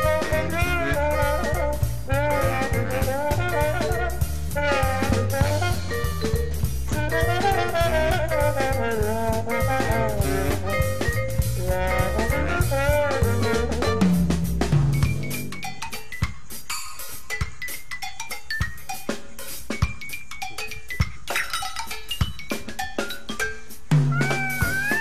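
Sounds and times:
swing jazz band: 0.0s - 15.7s, 23.9s - 25.0s.

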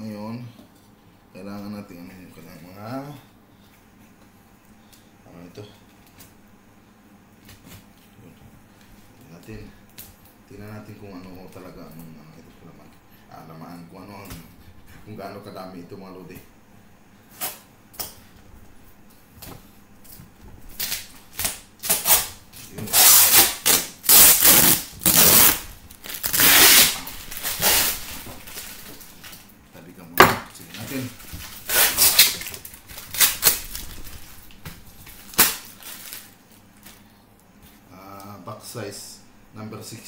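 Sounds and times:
tape and cardboard ripping: 20.7s - 29.1s, 30.8s - 34.1s, 35.1s - 36.3s.

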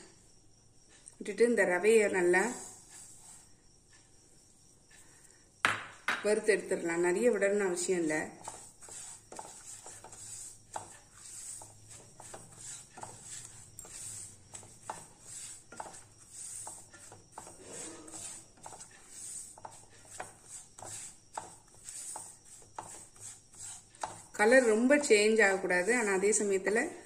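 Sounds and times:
spatula scraping a pan: 7.9s - 27.0s.

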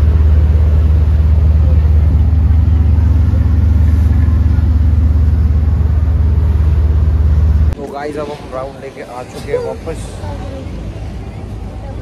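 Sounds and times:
ferry engine throbbing: 0.0s - 7.8s.

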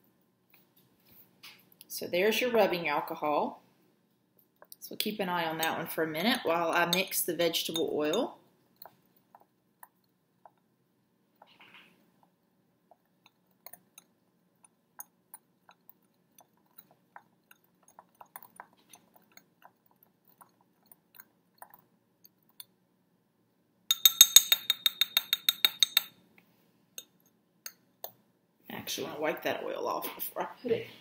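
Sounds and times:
rapid ringing clinks on glass: 23.9s - 26.2s.

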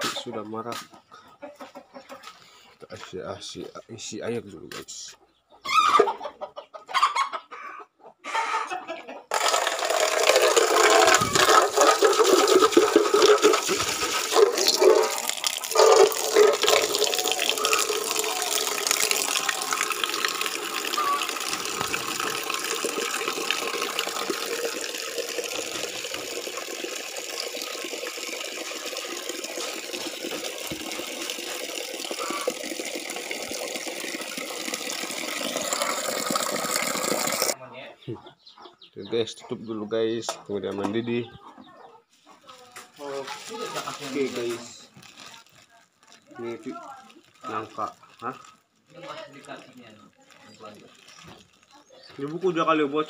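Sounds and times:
water running into metal pot: 9.3s - 37.6s.

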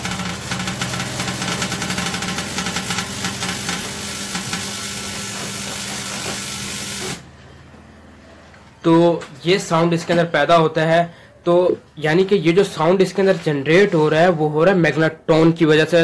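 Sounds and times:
microwave electrical hum: 0.0s - 9.7s.

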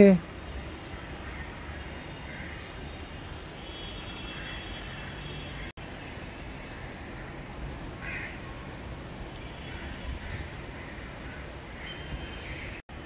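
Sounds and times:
crows cawing: 8.0s - 8.4s.

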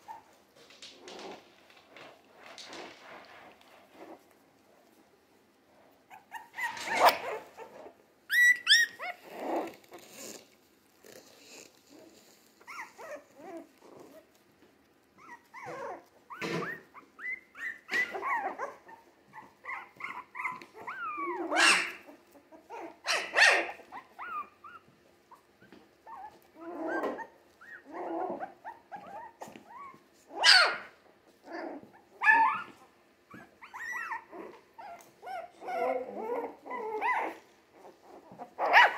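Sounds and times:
puppies yipping and whimpering: 6.1s - 10.4s, 12.6s - 14.1s, 15.2s - 38.9s.

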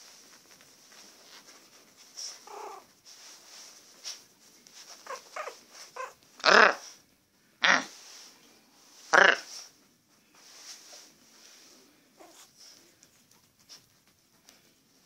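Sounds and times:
rustling of bedding: 0.0s - 7.1s, 7.9s - 15.0s
puppy whimpering and yelping: 5.0s - 6.2s.

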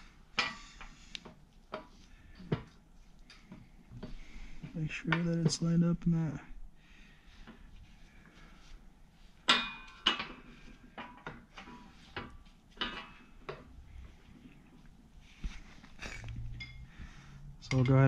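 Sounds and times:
metal clanks: 9.4s - 13.6s.

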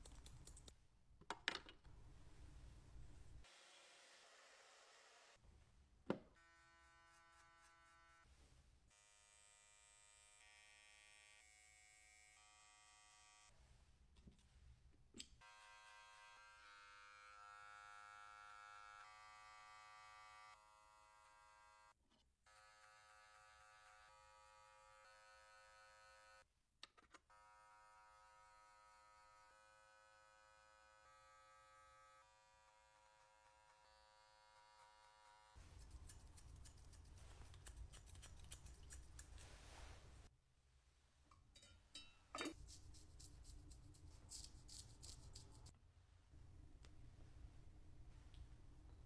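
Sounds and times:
hair clippers buzzing: 15.4s - 21.8s, 22.5s - 26.4s, 27.3s - 35.5s.

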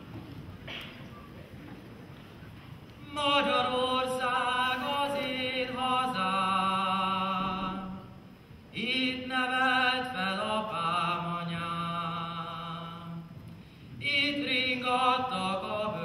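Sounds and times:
man singing unaccompanied: 3.0s - 13.4s, 14.0s - 16.0s.

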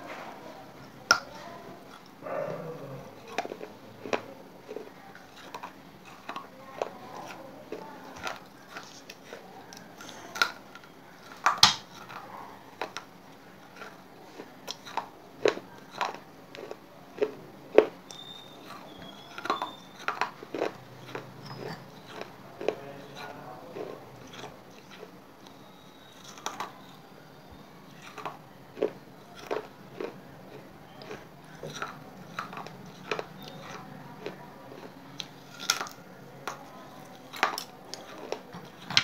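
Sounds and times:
clay chips crunching when chewed: 2.8s - 39.0s.

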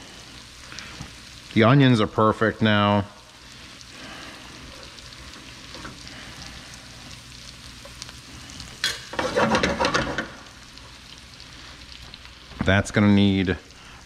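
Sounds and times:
food sizzling in a pan: 0.0s - 14.0s
clattering and scraping in pan: 8.8s - 10.4s.

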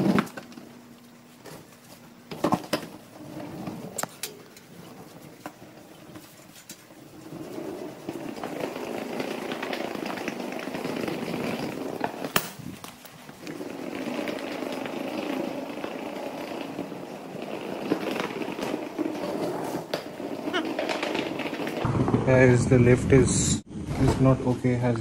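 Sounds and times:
suitcase wheels rattling on tiles: 4.7s - 21.8s.

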